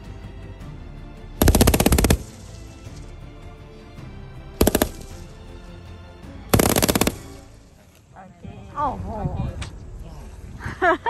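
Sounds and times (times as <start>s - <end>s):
faint background music: 0.0s - 11.0s
machine gun bursts: 1.4s - 2.4s, 4.6s - 5.3s, 6.6s - 7.4s.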